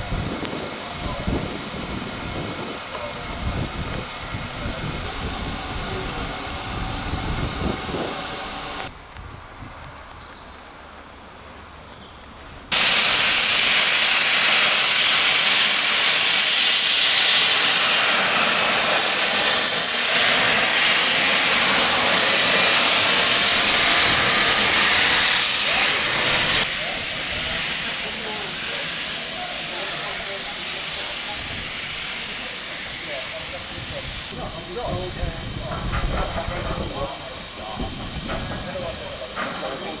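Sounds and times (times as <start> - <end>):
locomotive steam hissing: 0.0 - 8.9, 12.7 - 40.0
steam engine sounds: 0.0 - 8.9, 12.7 - 40.0.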